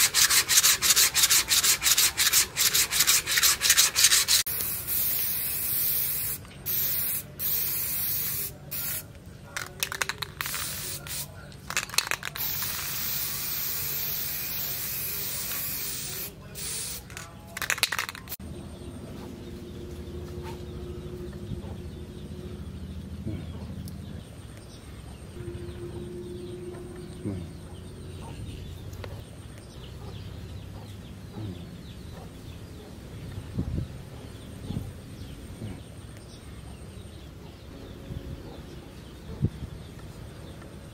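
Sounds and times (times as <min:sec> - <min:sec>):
aerosol spray can hissing: 0:00.0 - 0:09.0, 0:09.8 - 0:18.4
faint outdoor background: 0:00.0 - 0:40.9.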